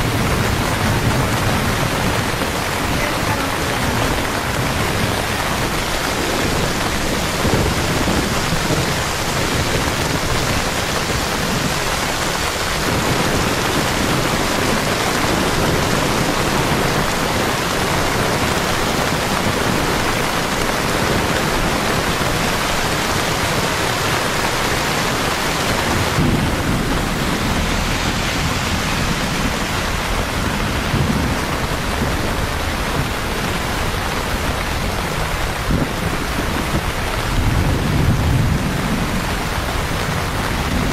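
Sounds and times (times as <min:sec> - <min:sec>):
heavy rain on pavement: 0:00.0 - 0:40.9
deep low rumble: 0:25.4 - 0:34.9.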